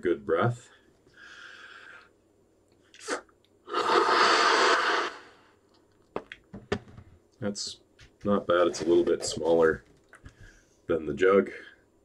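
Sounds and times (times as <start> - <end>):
man breathing in deeply: 1.1 - 2.1
blowing into a balloon: 3.0 - 5.4.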